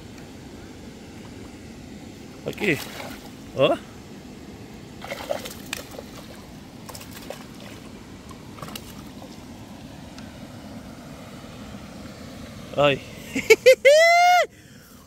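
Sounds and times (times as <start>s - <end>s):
water splashing and sloshing: 1.0s - 12.7s
fish thrashing in water: 2.6s - 3.4s, 5.0s - 7.9s, 8.5s - 9.3s.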